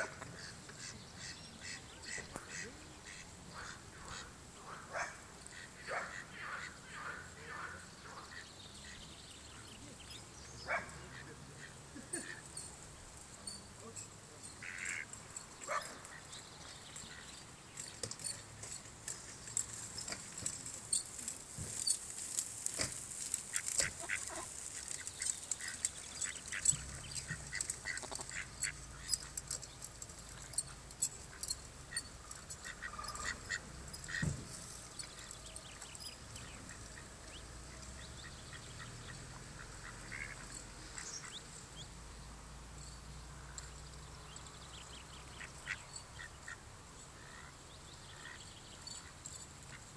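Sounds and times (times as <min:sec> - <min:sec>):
ducks and ducklings calling: 0:00.0 - 0:12.8, 0:13.5 - 0:20.2, 0:22.8 - 0:42.0, 0:43.3 - 0:49.9
small clicks and rustles: 0:16.9 - 0:33.3.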